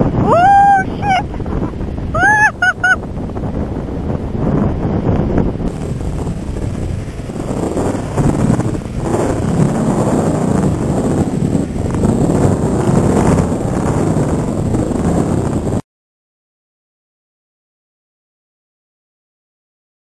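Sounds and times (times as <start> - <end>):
surf breaking on beach: 0.0 - 15.8
wind buffeting microphone: 0.0 - 15.8.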